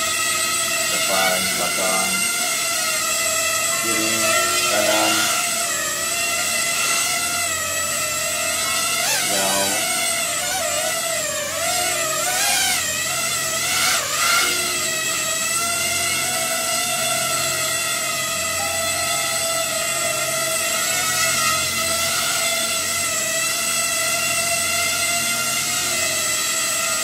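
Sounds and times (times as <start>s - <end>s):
drone motors whining: 0.0s - 27.0s.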